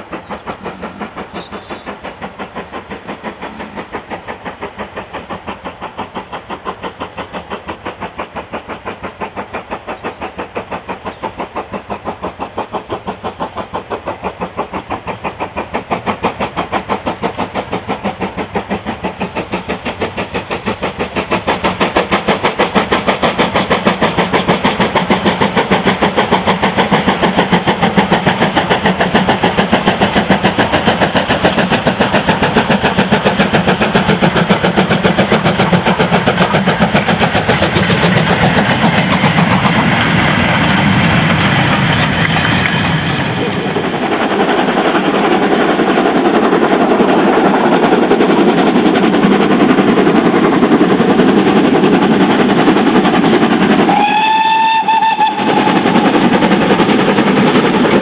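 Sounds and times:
steam locomotive exhaust beating: 0.0s - 58.0s
steam whistle: 53.9s - 56.0s.

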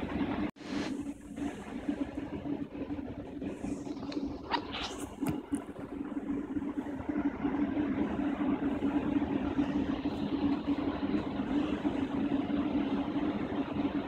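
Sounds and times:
electric train humming: 5.5s - 14.0s.

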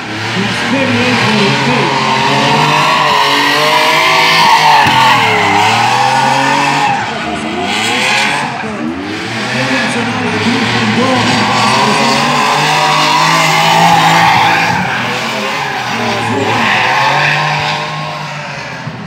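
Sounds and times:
car engine revving: 0.0s - 19.0s
tyres squealing: 0.8s - 17.7s.

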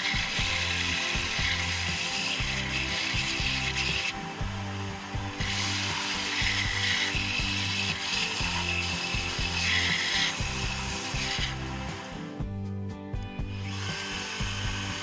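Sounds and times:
rasping hiss of sanding wood: 0.0s - 12.5s, 13.4s - 15.0s
belt sander motor running: 0.0s - 12.6s, 13.2s - 15.0s.

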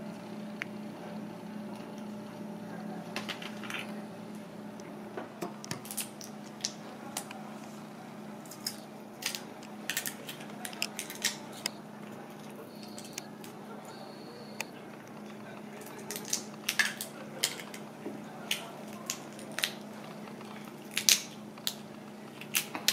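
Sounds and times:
steady hum: 0.0s - 22.9s
prawn shell being peeled: 8.4s - 11.7s, 18.4s - 22.9s.

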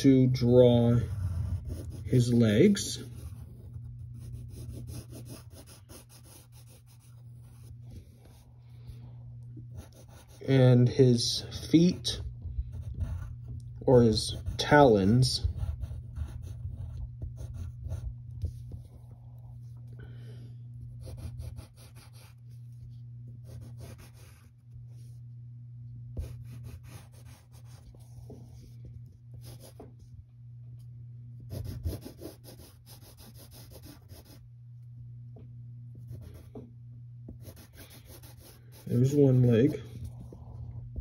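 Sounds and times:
steady low hum: 0.0s - 41.0s
pencil scratching on paper: 0.4s - 8.5s, 9.8s - 10.7s, 11.9s - 19.1s, 21.0s - 22.7s, 23.4s - 25.0s, 26.2s - 28.8s, 29.4s - 29.8s, 31.5s - 34.4s, 37.4s - 40.5s.

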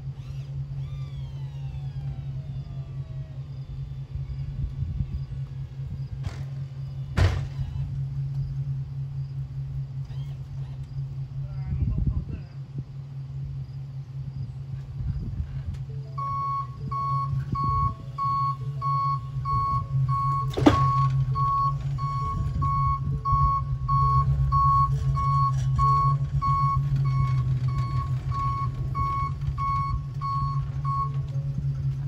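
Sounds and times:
truck engine hum: 0.0s - 32.0s
backup alarm beeping: 15.9s - 32.0s
metal clank: 20.3s - 22.6s.

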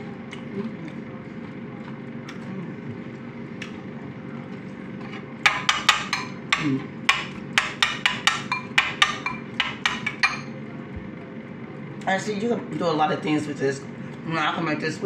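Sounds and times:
metal spoon clinking in ceramic bowl: 7.8s - 10.5s.

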